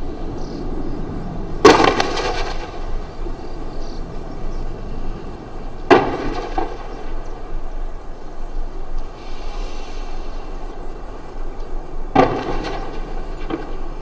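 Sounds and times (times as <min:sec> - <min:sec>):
steady low rumble: 0:00.0 - 0:14.0
artillery fire blasts: 0:01.6 - 0:03.2, 0:05.8 - 0:07.2, 0:12.1 - 0:14.0.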